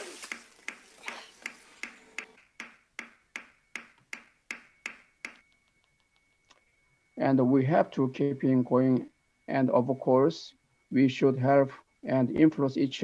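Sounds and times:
faint low steady tone: 6.6 - 13.0.

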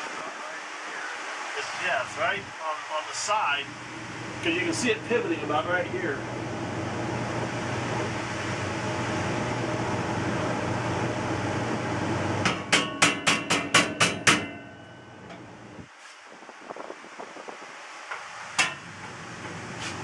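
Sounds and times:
steady hum: 0.0 - 20.0
hammer blows on sheet metal: 12.4 - 15.4, 18.5 - 20.0.

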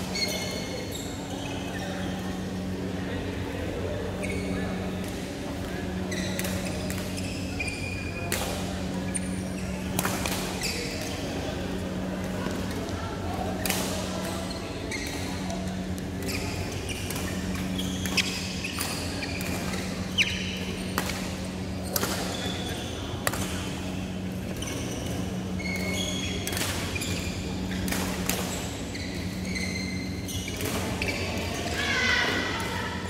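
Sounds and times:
steady low hum: 0.0 - 33.0
shoes squeaking on court: 0.1 - 2.8, 5.9 - 11.4, 13.5 - 31.8.

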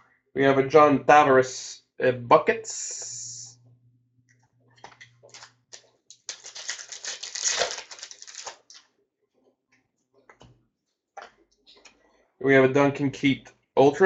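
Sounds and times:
cards flipping and clicking: 4.8 - 8.8.

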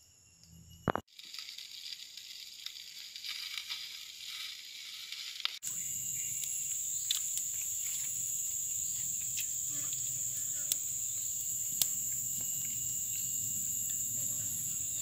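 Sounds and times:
insects droning: 0.0 - 15.0
wood fire snapping: 0.9 - 5.7, 10.7 - 13.3.

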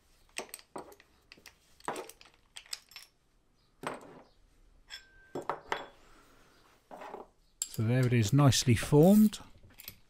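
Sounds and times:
steel tool parts clinking: 7.6 - 8.2.

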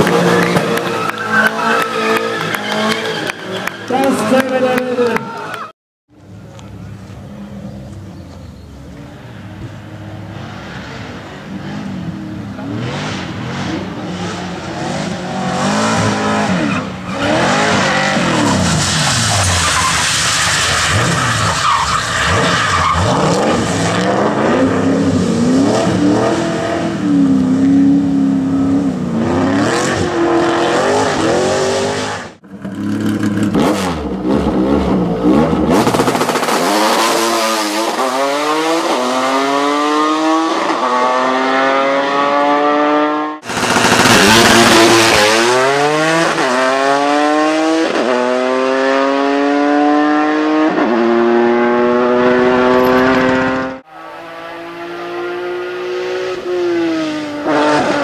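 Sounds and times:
car engine revving hard: 11.6 - 18.8, 33.0 - 58.0
second car engine revving: 23.1 - 58.0.

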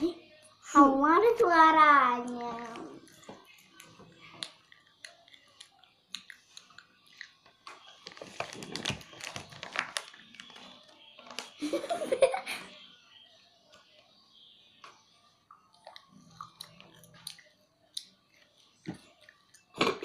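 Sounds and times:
child crunching hard snack: 8.0 - 10.6.

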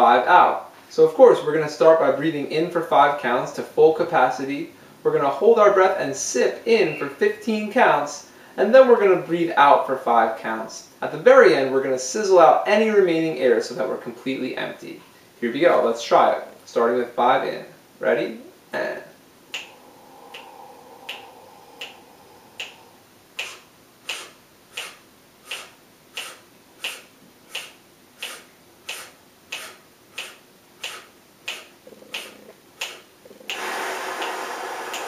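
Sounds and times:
deep breath in: 19.1 - 32.4, 33.2 - 35.0
loud forceful exhale: 19.1 - 35.0
finger snaps: 19.5 - 33.6, 34.2 - 35.0.

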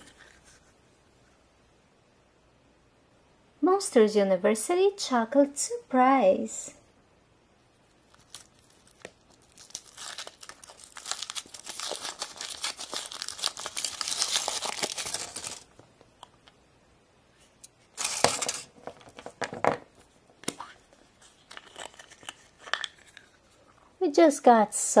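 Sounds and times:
foil wrapper tearing and crinkling: 8.1 - 15.8, 18.0 - 19.2, 21.3 - 23.2
chocolate egg cracking: 8.1 - 16.5.

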